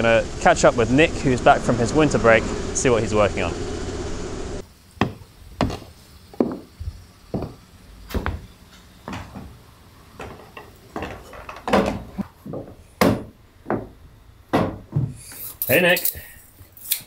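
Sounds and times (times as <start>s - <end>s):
footsteps on wooden deck: 5.0s - 15.3s.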